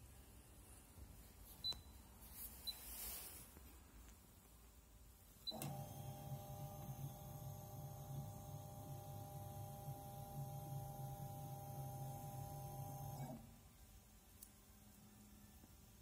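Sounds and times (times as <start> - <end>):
motor humming with thin whine: 5.5 - 13.4.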